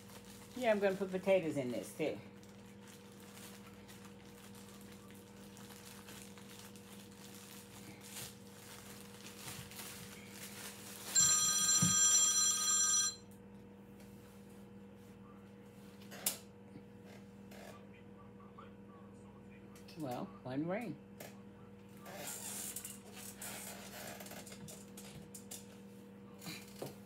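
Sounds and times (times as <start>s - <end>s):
telephone ringing: 11.1s - 13.3s.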